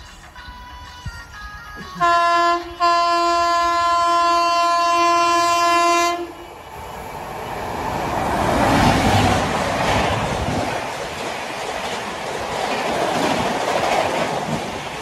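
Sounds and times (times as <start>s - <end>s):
train passing at speed: 0.0s - 15.0s
train horn blast: 2.0s - 6.6s.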